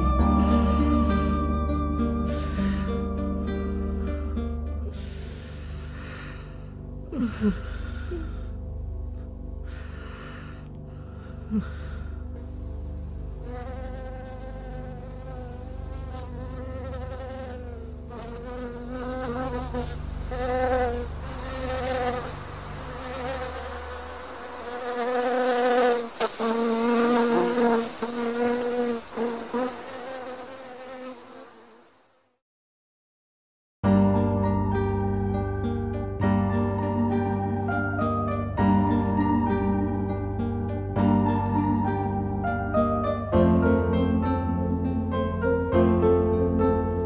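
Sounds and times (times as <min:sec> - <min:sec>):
fly buzzing: 0:00.0 - 0:06.6, 0:13.4 - 0:32.4
low hum: 0:00.0 - 0:16.5, 0:17.7 - 0:24.9.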